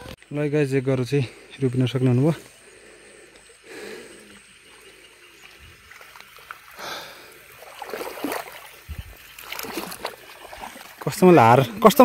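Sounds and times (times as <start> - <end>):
muddy water splashing: 2.6 - 12.0.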